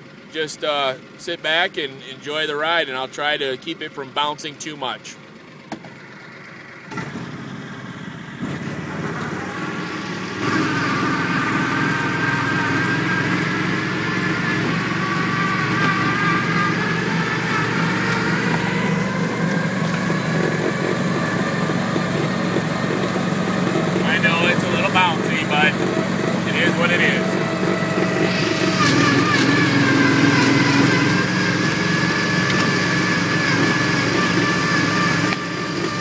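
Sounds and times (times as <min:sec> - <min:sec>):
vehicle engine with high whine: 0:00.0 - 0:36.0.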